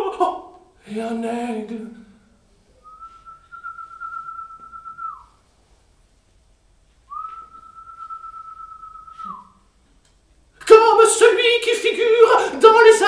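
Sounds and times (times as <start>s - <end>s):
person whistling high notes: 2.8s - 5.4s, 7.1s - 9.7s.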